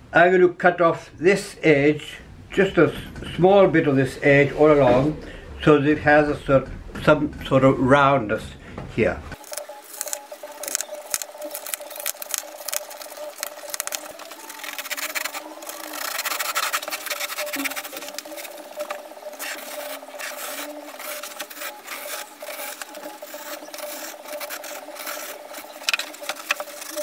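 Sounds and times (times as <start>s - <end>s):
blade cutting foam: 9.4s - 27.0s.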